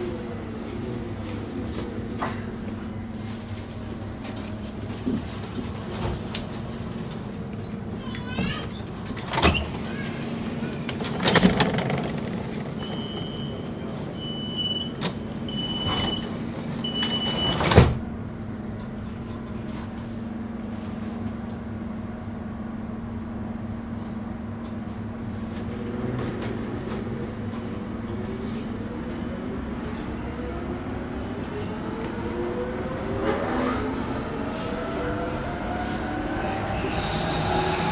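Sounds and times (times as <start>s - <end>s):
tram humming: 0.0s - 37.9s
door warning beeps: 12.8s - 17.7s
traction motor whine: 35.9s - 37.9s.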